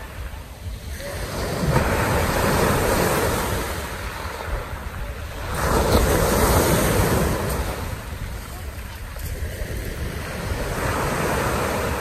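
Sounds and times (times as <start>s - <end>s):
waves breaking on pebble beach: 0.0s - 12.0s
wind rumbling on microphone: 0.0s - 12.0s.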